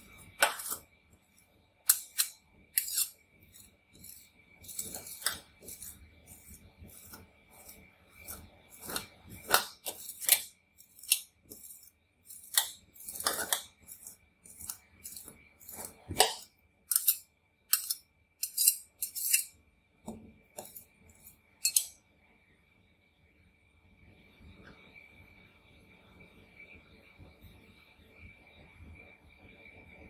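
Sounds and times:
metal spatula scraping ice cream: 0.0 - 19.6, 20.6 - 22.0
faint high whine: 0.0 - 30.0.

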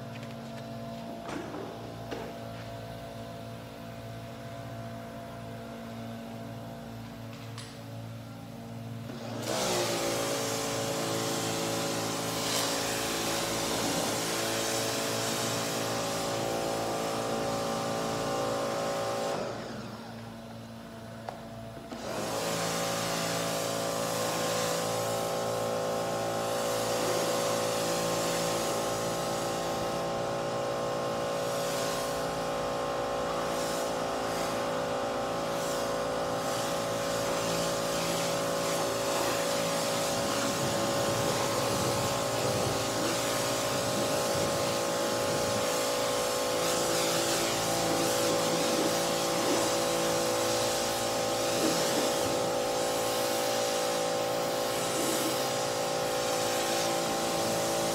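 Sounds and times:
pressure washer motor whine: 0.0 - 57.9
water jet hissing on car: 9.4 - 19.6, 22.2 - 57.9.

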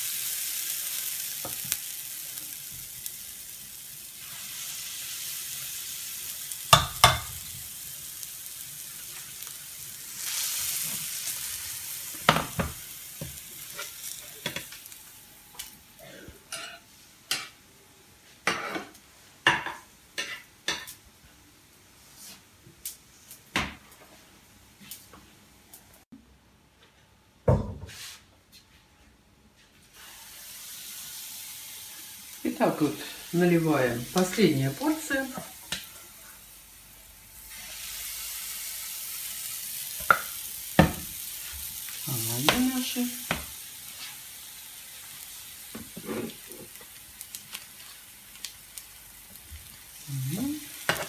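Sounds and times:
pancakes sizzling in oil: 0.0 - 15.8, 18.2 - 21.1, 29.6 - 51.0
oil spattering crackles: 45.0 - 51.0.

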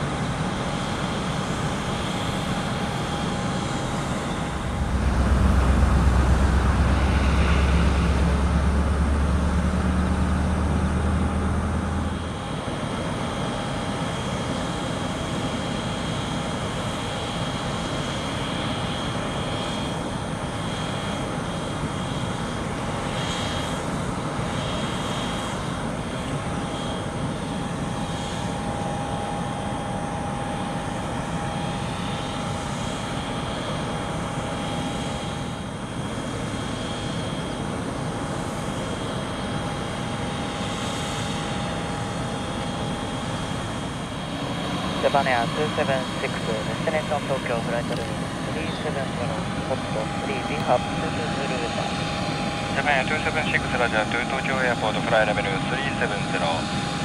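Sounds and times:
jet engines running: 0.0 - 57.0
deep drone: 3.4 - 12.5.

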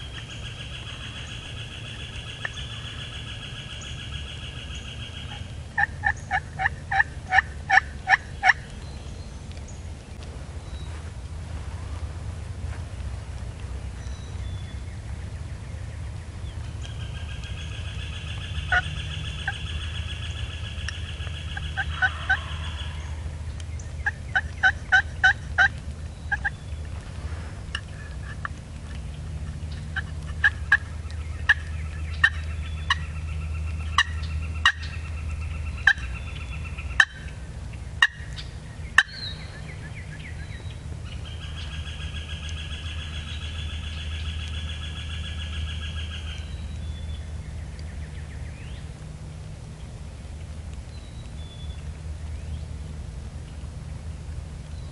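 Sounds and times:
wild turkeys gobbling: 0.0 - 8.8, 16.4 - 26.7, 27.7 - 37.4, 38.0 - 46.8
low hum: 0.0 - 54.9.

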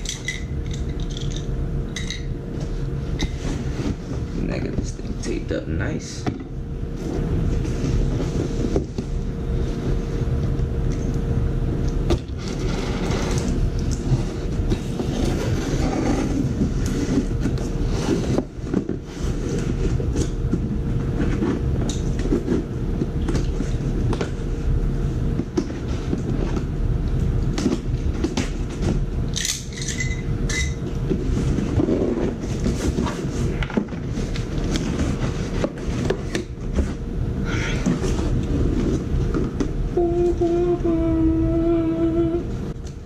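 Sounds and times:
loud low rumble with hum: 0.0 - 43.0
cardboard box scraping on floor: 12.4 - 19.8.

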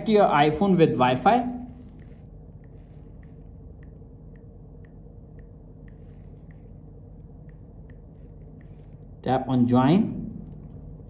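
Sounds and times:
steady low hum: 0.0 - 11.0
touchscreen typing ticks: 2.0 - 9.1.

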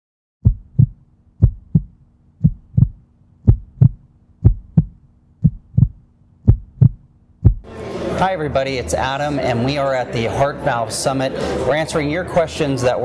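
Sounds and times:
heartbeat thumping: 0.4 - 7.7.

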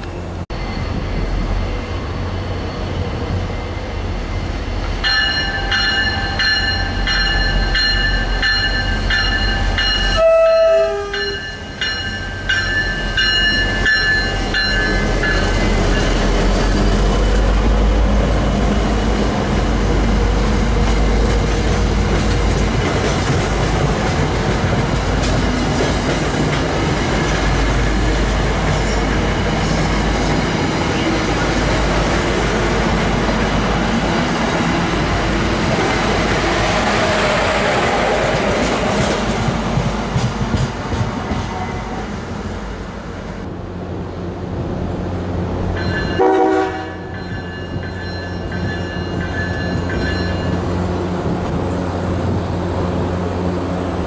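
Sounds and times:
locomotive air horn blasts: 10.2 - 11.5, 46.2 - 47.1
train wheels clacking on rails: 18.8 - 32.8, 33.4 - 41.8, 45.6 - 51.6.

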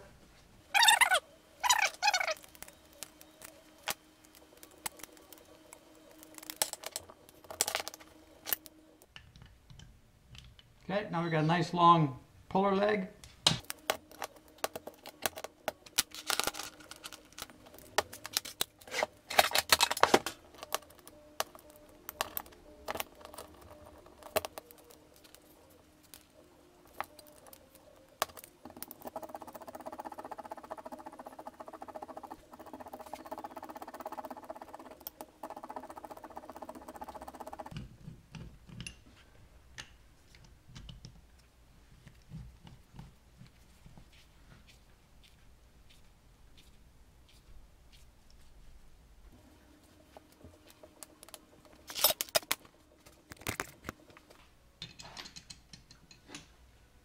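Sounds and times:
steady hum: 13.1 - 37.8.

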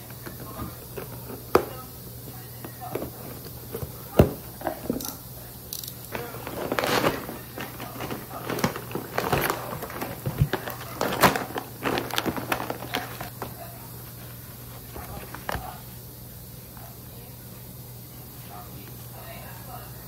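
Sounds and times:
faint steady hum: 0.0 - 20.0
small objects clattering: 5.8 - 13.6
rustling: 6.1 - 15.8.

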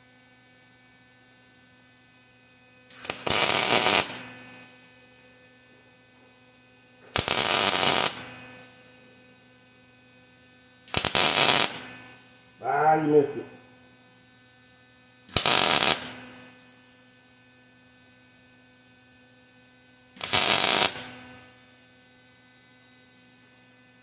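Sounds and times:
steady electrical hum: 0.0 - 24.0
welding arc crackling: 2.9 - 4.3, 7.1 - 8.4, 10.9 - 12.0, 15.3 - 16.4, 20.2 - 21.4.

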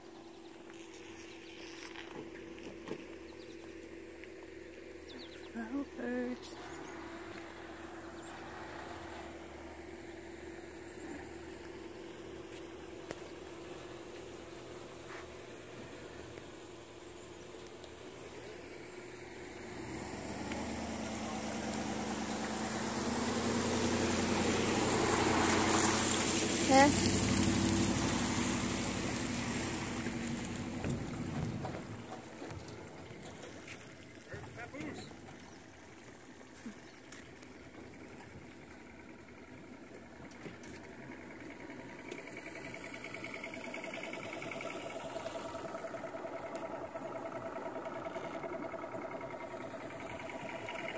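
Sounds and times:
car engine humming: 0.0 - 50.9
small boat motor whirring: 0.0 - 50.9.

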